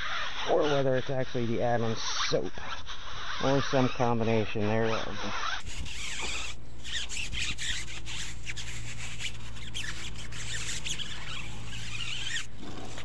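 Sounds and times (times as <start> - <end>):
wet scrubbing of tyre: 0.0 - 13.0
short squeaks: 3.2 - 13.0.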